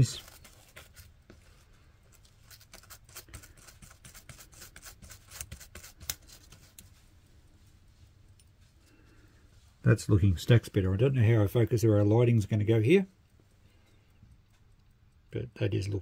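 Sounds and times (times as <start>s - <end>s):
toothbrush scrubbing metal: 2.4s - 6.9s.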